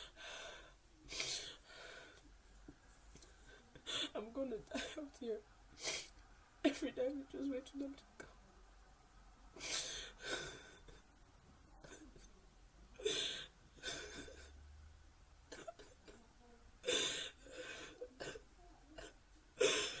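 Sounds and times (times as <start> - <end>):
girl sobbing: 3.7 - 6.1, 9.6 - 11.1, 11.8 - 12.3, 13.0 - 14.6, 15.5 - 20.0.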